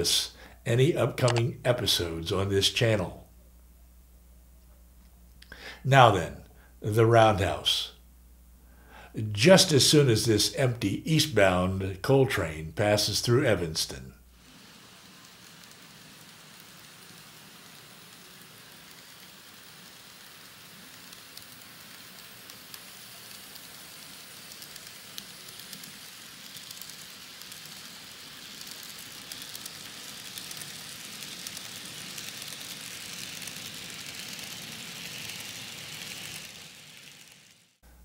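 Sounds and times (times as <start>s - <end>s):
model train wheels whirring: 0.0s - 3.2s, 9.1s - 37.9s
small clicks: 1.2s - 1.5s, 18.3s - 36.5s.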